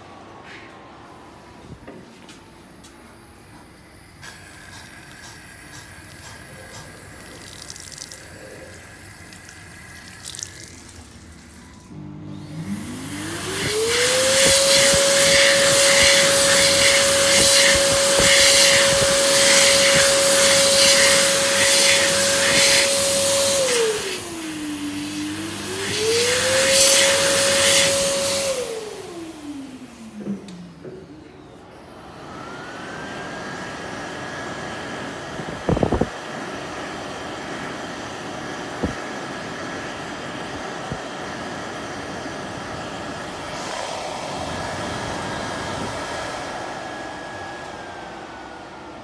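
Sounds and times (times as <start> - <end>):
hand dryer motor whine: 1.5 - 49.0.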